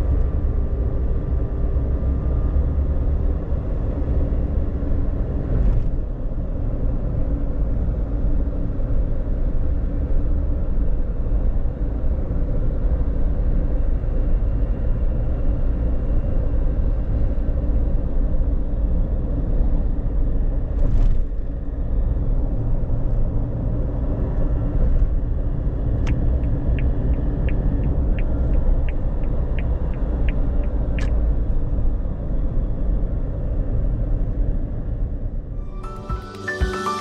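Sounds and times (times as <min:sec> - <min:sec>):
car engine low rumble: 0:00.0 - 0:36.6
tyres on the road: 0:00.0 - 0:37.0.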